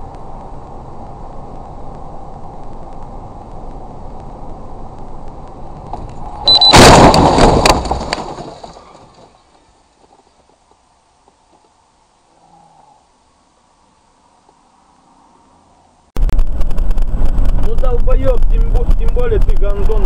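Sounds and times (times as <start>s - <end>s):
vehicle collision crash: 5.9s - 9.9s.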